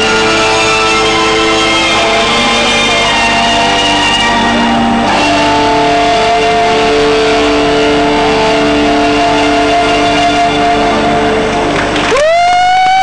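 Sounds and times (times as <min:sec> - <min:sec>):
loud music with held chords: 0:00.0 - 0:12.2.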